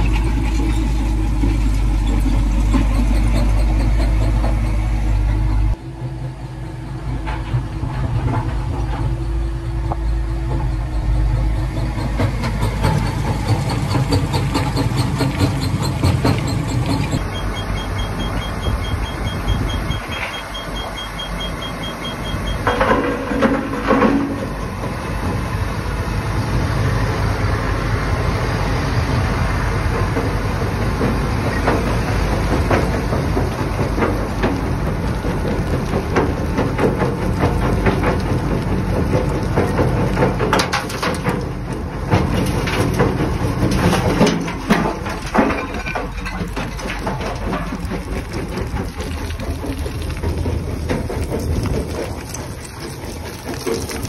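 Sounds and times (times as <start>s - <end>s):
engine hum: 0.0s - 54.0s
stone cracking and clattering: 33.9s - 54.0s.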